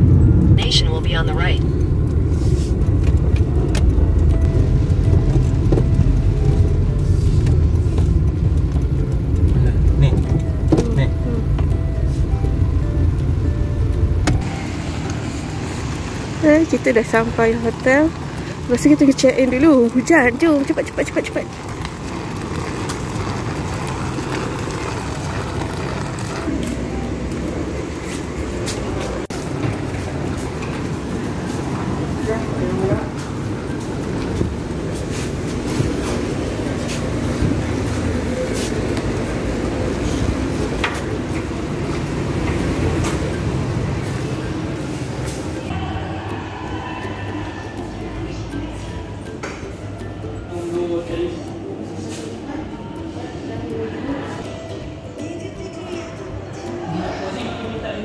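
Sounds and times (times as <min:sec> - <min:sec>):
suitcase wheels rolling on asphalt: 0:00.0 - 0:45.8
car engine and tyres rumbling: 0:00.0 - 0:58.0.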